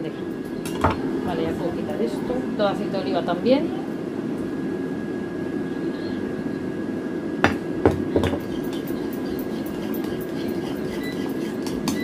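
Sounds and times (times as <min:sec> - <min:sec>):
air fryer fan whirring: 0:00.0 - 0:12.0
spoon clicking while mixing: 0:08.4 - 0:12.0
spoon knocking on ceramic bowl: 0:11.0 - 0:12.0.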